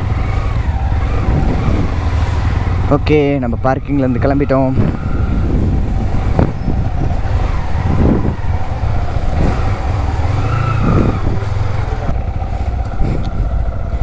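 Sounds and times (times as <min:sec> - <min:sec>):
motorcycle engine pulling away: 0:05.0 - 0:14.0.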